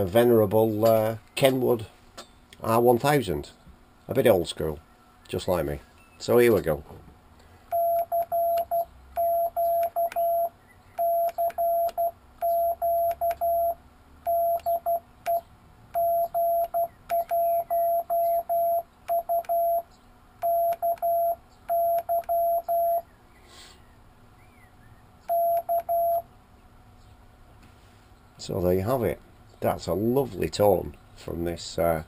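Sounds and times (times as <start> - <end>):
morse code tone: 7.7 - 23.1, 25.3 - 26.3.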